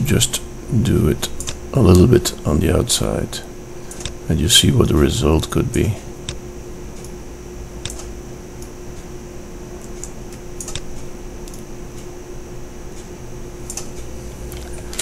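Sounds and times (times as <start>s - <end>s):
background hum: 0.0s - 15.0s
mouse and keyboard clicks: 9.8s - 11.6s.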